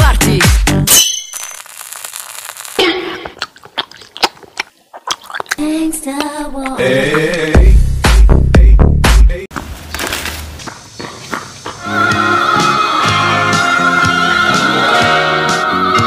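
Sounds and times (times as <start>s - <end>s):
person slurping: 2.8s - 7.5s
wet sucking and lip-smacking: 3.0s - 7.5s
person humming: 5.6s - 7.9s.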